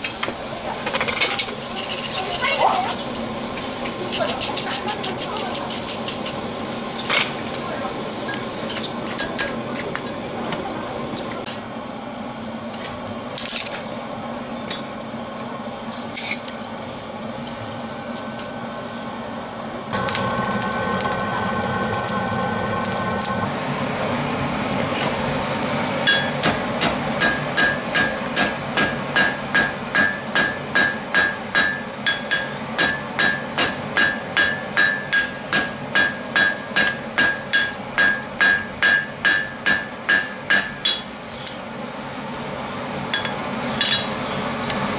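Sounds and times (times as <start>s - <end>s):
hammer striking steel on anvil: 26.0s - 41.1s, 43.2s - 44.1s.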